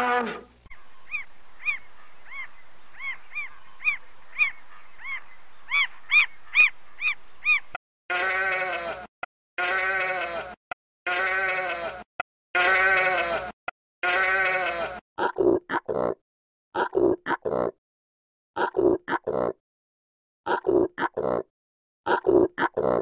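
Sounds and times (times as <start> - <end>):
deeper animal call: 0.0 - 0.5, 8.1 - 12.0, 12.6 - 16.1
sheep bleating: 8.1 - 15.0.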